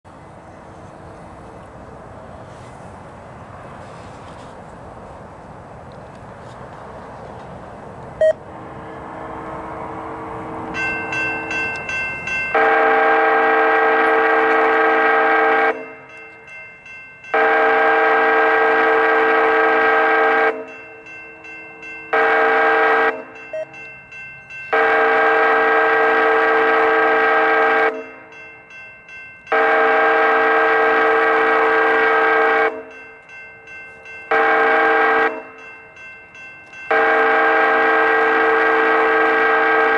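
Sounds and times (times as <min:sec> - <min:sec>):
train rumble: 0:00.0 - 0:39.9
crossing bell ringing: 0:08.2 - 0:39.9
locomotive horn blasts: 0:12.5 - 0:16.1, 0:17.3 - 0:20.8, 0:21.4 - 0:23.8, 0:24.7 - 0:28.3, 0:29.5 - 0:33.0, 0:34.3 - 0:35.6, 0:36.9 - 0:39.9.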